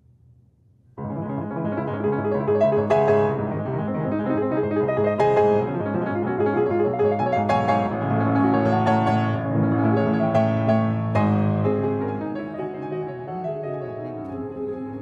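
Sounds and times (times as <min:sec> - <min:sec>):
grand piano playing: 0:01.0 - 0:15.0.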